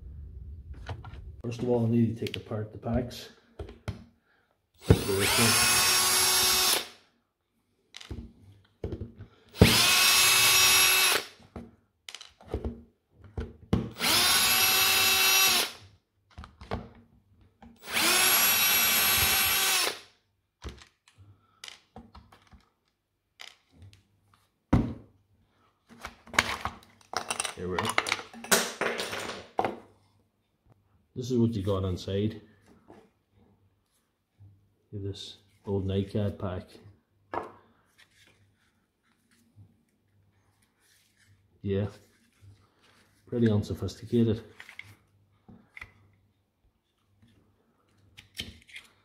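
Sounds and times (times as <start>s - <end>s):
cordless screwdriver whining: 4.8s - 7.0s, 9.6s - 11.3s, 14.0s - 15.8s, 17.8s - 20.0s.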